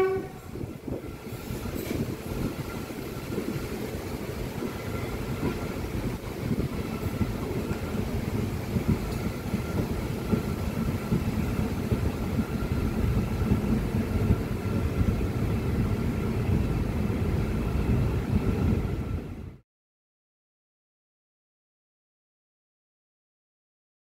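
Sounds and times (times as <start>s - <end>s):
train wheels rumbling on rails: 0.0s - 19.6s.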